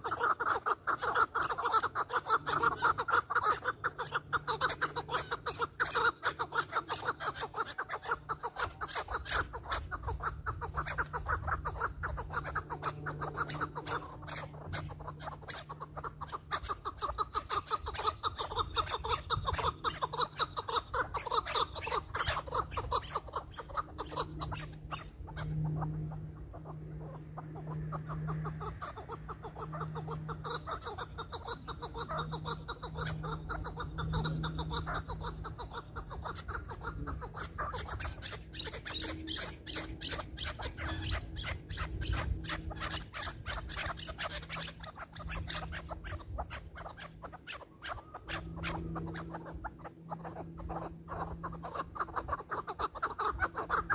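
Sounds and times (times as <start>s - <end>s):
low hum: 22.0s - 44.2s.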